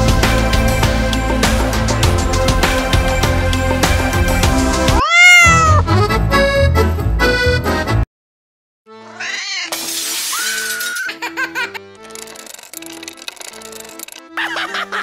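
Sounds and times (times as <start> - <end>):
background music: 0.0 - 8.0, 8.9 - 15.0
cat meow: 5.0 - 5.8, 9.2 - 9.7
woman screaming: 5.0 - 5.8.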